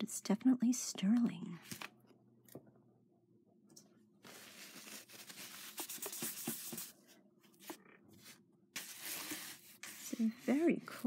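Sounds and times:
hands rustling and crinkling: 4.2s - 6.9s.

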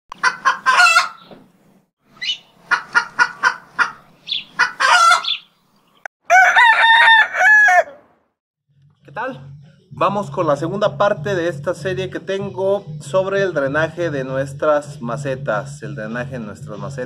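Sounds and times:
chickens clucking: 0.1s - 1.4s, 2.2s - 5.6s
rooster crowing: 4.6s - 5.4s, 6.2s - 8.2s.

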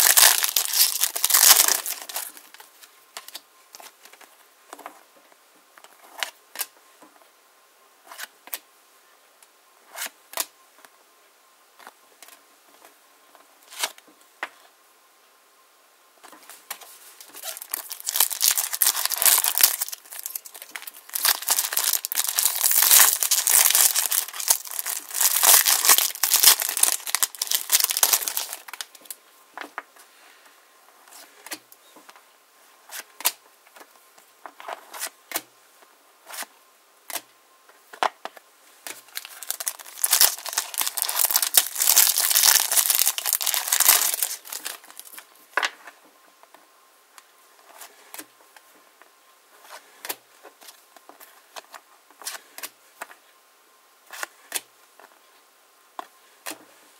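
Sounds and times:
foil wrappers crinkling and tearing: 0.0s - 2.7s, 17.2s - 29.1s, 38.9s - 45.3s.

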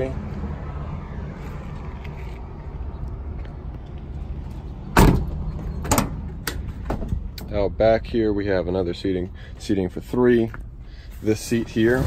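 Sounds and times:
truck door slamming: 4.9s - 7.2s.

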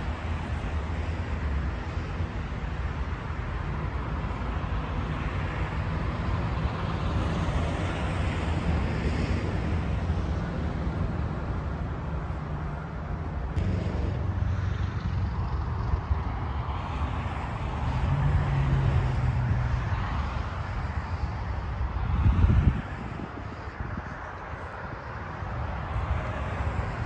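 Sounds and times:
diesel locomotive engine drone: 0.0s - 27.0s
rumbling noise: 13.6s - 16.1s.

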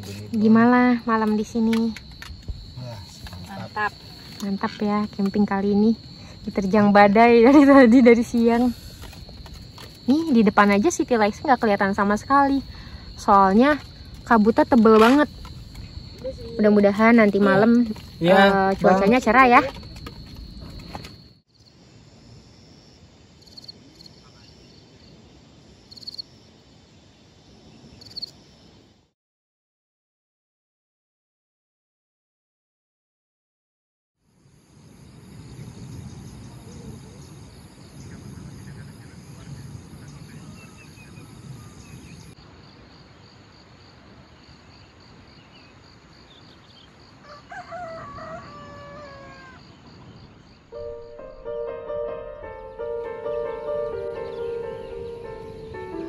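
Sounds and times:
crickets chirping: 0.0s - 29.2s, 34.2s - 56.0s
rooster crowing: 47.2s - 49.8s.

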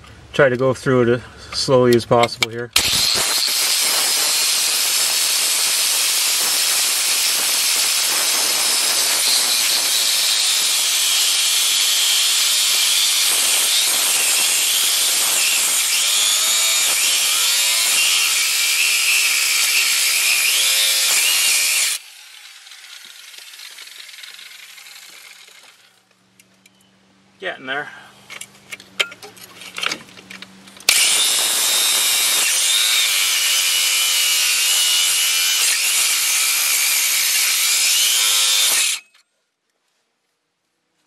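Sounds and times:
angle grinder cutting steel: 2.8s - 26.0s, 30.8s - 39.2s.

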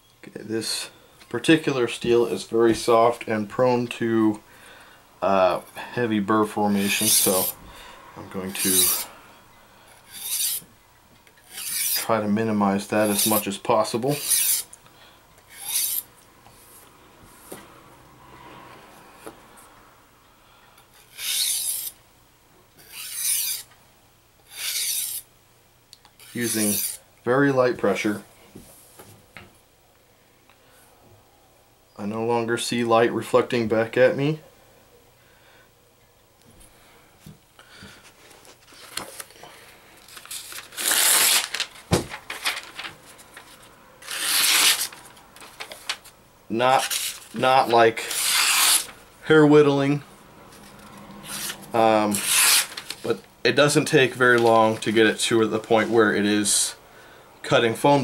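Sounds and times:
paper page ripping: 6.9s - 7.5s, 8.5s - 9.0s, 13.0s - 13.4s, 26.2s - 27.0s, 40.0s - 46.2s, 46.8s - 49.0s, 51.3s - 53.2s
knife scraping on sharpening stone: 10.1s - 10.6s, 11.5s - 12.0s, 14.2s - 14.6s, 21.1s - 21.9s, 22.8s - 23.6s, 24.5s - 25.2s
paper rustling and crinkling: 38.1s - 39.4s, 40.0s - 46.2s, 51.3s - 53.2s.

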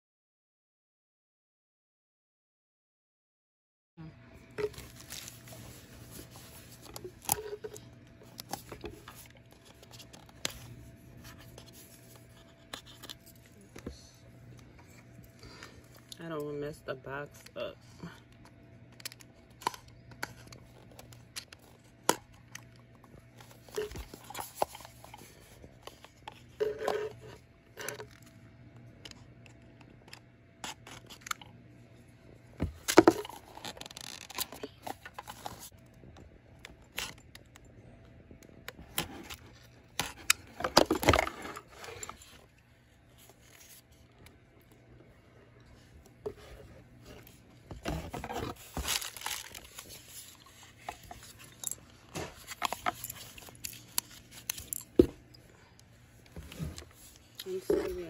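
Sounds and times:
box rustling and tearing: 4.6s - 7.7s, 47.2s - 54.8s.

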